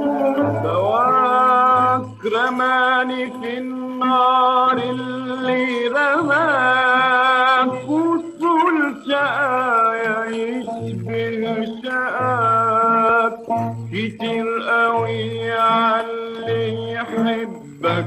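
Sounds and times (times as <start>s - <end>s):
low accompaniment: 0.0s - 18.0s.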